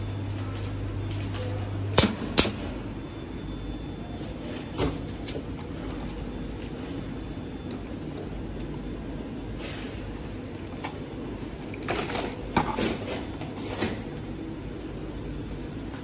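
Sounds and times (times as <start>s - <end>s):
steady low hum: 0.0s - 16.0s
plastic trays clattering: 10.7s - 13.5s.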